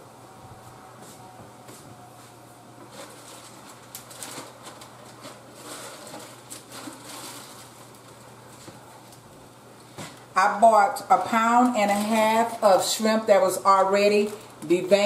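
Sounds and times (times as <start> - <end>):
rustling and handling noises: 1.0 - 10.3.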